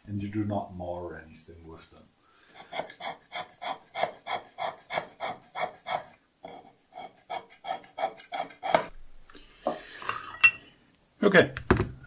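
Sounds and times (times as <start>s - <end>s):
hand scraper scraping metal: 2.5s - 8.9s.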